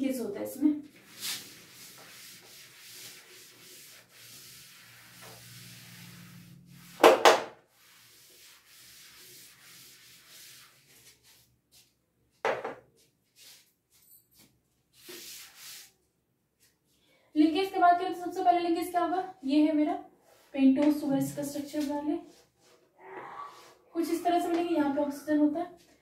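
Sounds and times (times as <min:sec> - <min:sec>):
duster rubbing chalkboard: 0:00.9 - 0:11.9.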